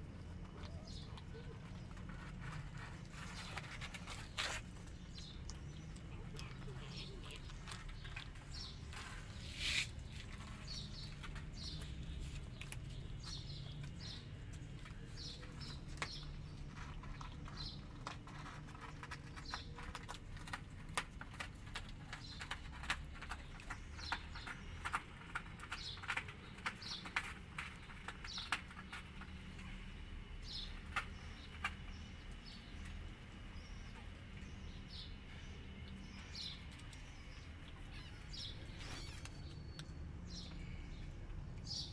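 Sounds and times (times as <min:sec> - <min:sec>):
kitten crunching dry kibble: 0:00.0 - 0:33.5, 0:34.2 - 0:41.8
small birds chirping: 0:00.0 - 0:41.9.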